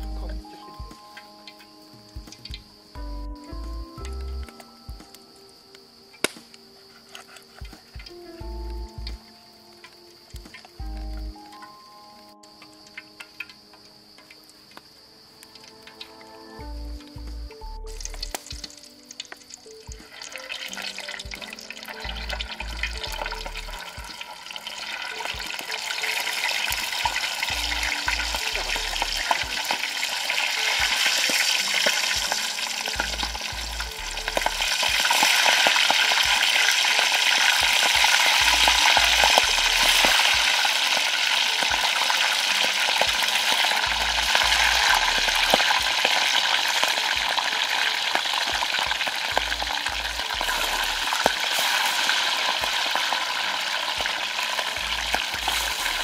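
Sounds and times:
fish deep-frying in hot oil: 0:10.3 - 0:14.5, 0:15.9 - 0:56.0.

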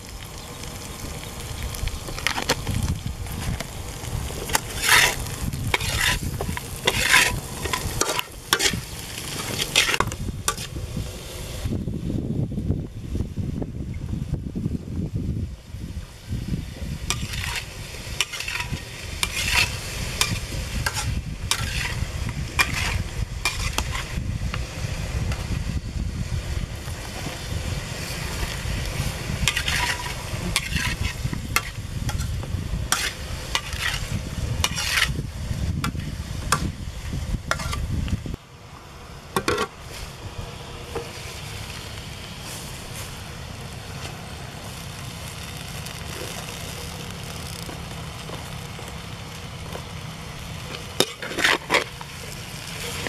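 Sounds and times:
fish sizzling in oil: 0:00.0 - 0:11.7, 0:16.1 - 0:37.9, 0:40.9 - 0:53.0
metal spatula scraping a wok: 0:04.4 - 0:10.8, 0:17.1 - 0:24.2, 0:28.1 - 0:35.2, 0:37.5 - 0:37.9, 0:50.6 - 0:53.0.

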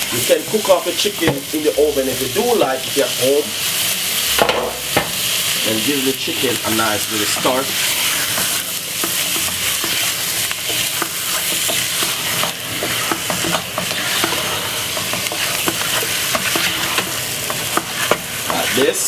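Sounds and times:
chicken sizzling in hot oil: 0:00.0 - 0:19.0
wooden spoon scraping pot: 0:05.8 - 0:19.0.

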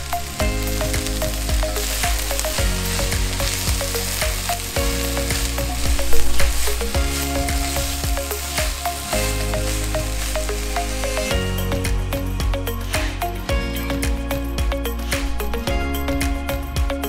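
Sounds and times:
vegetables sizzling in a pot: 0:00.0 - 0:13.4.

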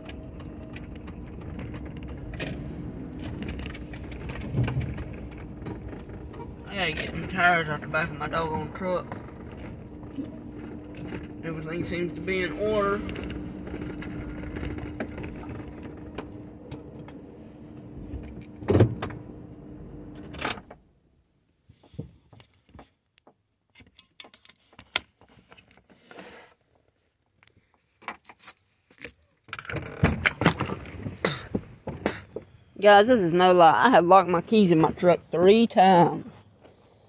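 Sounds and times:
clunk: 0:00.0 - 0:07.4
truck engine idling: 0:00.0 - 0:18.1.

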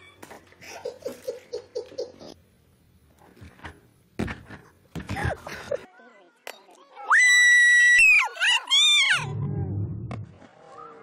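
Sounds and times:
sudden loud sound: 0:09.1 - 0:10.4.

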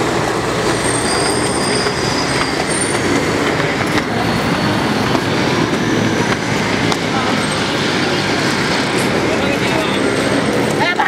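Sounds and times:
heavy vehicles rumbling past: 0:00.0 - 0:11.0
high squeals: 0:00.4 - 0:07.8.

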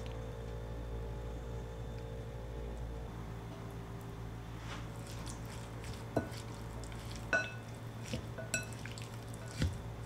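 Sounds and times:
utensils clinking against glass bowl: 0:05.5 - 0:09.8.

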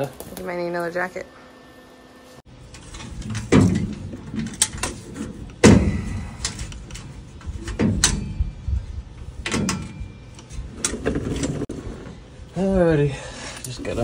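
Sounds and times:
sharp knocks and clanks: 0:02.7 - 0:08.7, 0:09.4 - 0:11.7.

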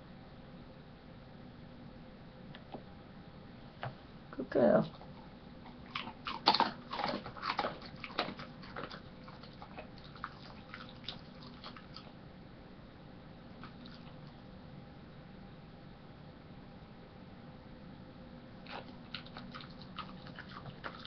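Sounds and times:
dog chewing a treat: 0:04.9 - 0:12.2, 0:13.6 - 0:14.4, 0:18.6 - 0:21.0.

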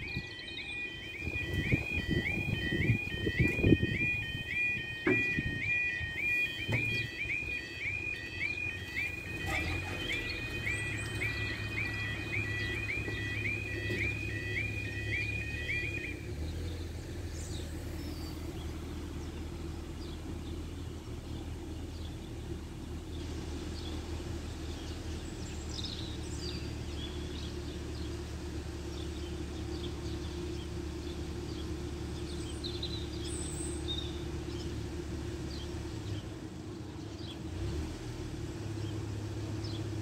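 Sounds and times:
background traffic rumble: 0:00.0 - 0:40.0
wind: 0:00.0 - 0:40.0
small birds chirping: 0:06.2 - 0:34.8.

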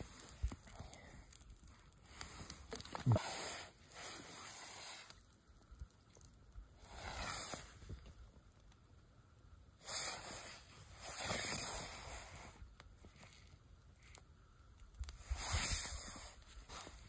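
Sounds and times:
breath blowing on fire: 0:00.0 - 0:05.4, 0:06.7 - 0:08.2, 0:09.8 - 0:14.2, 0:15.0 - 0:17.0.

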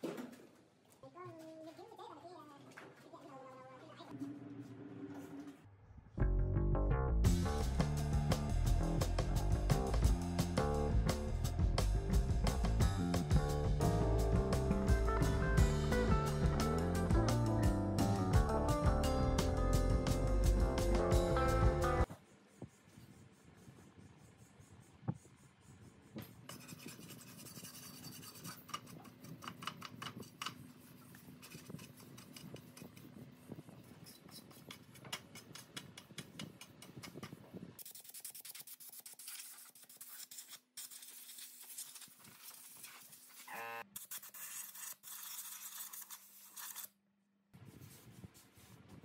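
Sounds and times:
brush scrubbing metal: 0:22.2 - 0:36.4, 0:37.8 - 0:46.9.

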